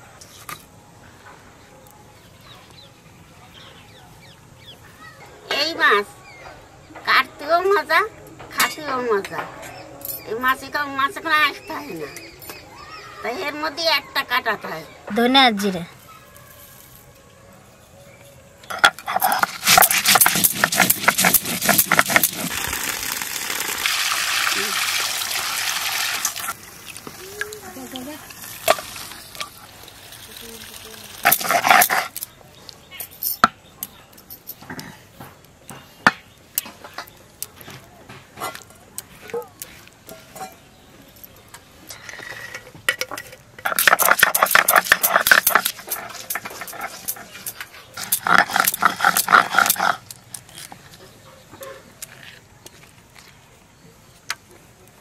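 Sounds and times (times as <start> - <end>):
stone roller crushing seeds: 18.6 - 32.3, 41.9 - 51.1
stone muller crushing onions: 18.8 - 23.8, 43.6 - 50.1.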